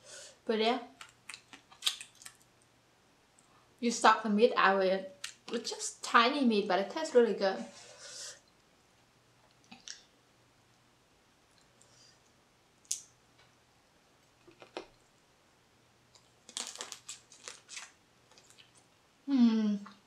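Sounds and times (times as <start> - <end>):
crab shell cracking: 1.0 - 2.4, 16.2 - 18.8
smacking mouth noises: 1.0 - 2.4, 9.6 - 10.0, 14.4 - 15.0.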